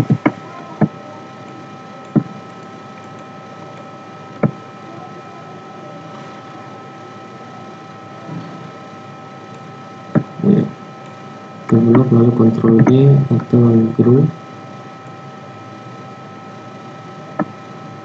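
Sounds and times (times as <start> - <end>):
microphone hiss: 0.0 - 8.8, 9.4 - 18.0
faint electrical hum: 0.0 - 18.0
computer mouse clicks: 1.5 - 4.6.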